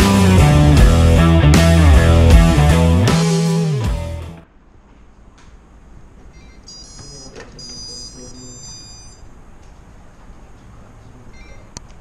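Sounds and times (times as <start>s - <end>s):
high electronic beeps: 6.3s - 9.3s.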